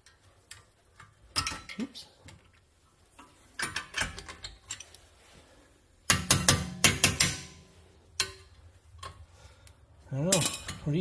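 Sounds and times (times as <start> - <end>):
metal tools clinking and clanking: 10.2 - 11.0.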